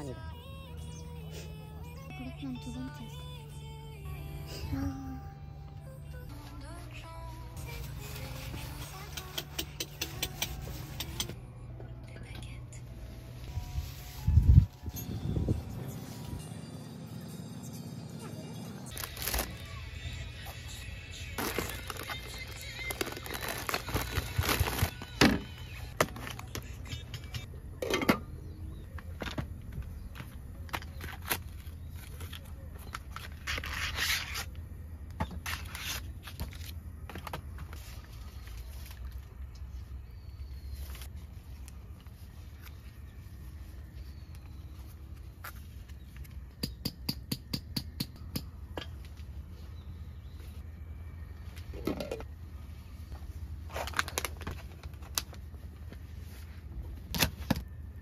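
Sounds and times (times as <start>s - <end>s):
plastic packaging rustling: 18.9s - 19.8s, 21.3s - 26.6s, 53.6s - 55.5s.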